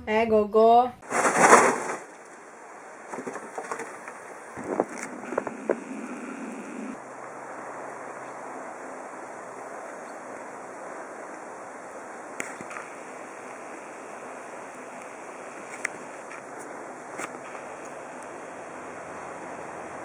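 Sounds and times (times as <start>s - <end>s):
wind hissing: 3.9s - 20.0s.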